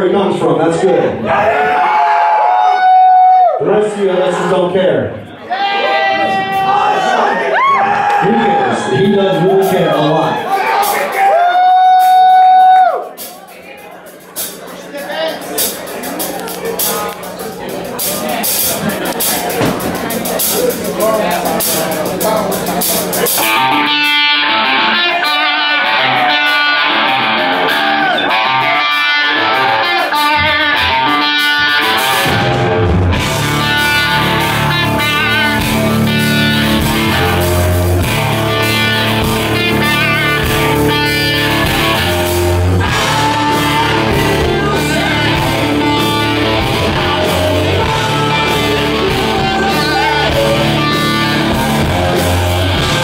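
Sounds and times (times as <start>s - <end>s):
drums: 5.6s - 53.0s
bass guitar: 7.6s - 53.0s
electric guitar: 15.5s - 53.0s.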